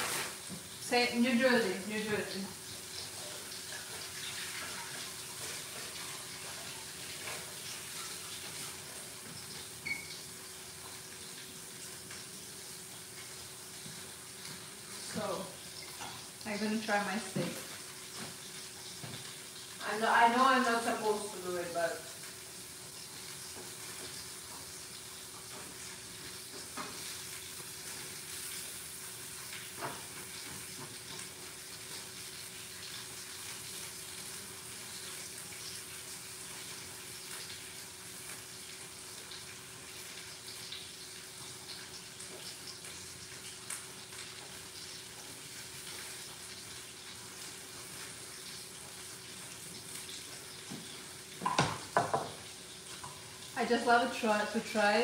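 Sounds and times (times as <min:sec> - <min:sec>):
steak sizzling in frying pan: 0:00.0 - 0:55.0.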